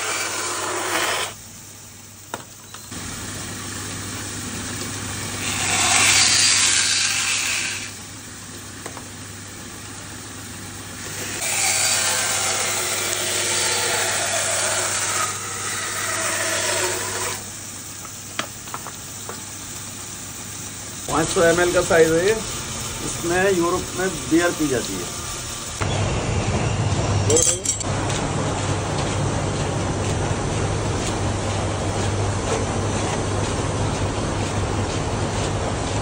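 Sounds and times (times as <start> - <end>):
saw blade cutting horn: 0.0 - 1.4, 5.4 - 8.0, 11.2 - 17.5
band saw motor hum: 2.9 - 9.0, 9.6 - 17.8, 21.0 - 26.5.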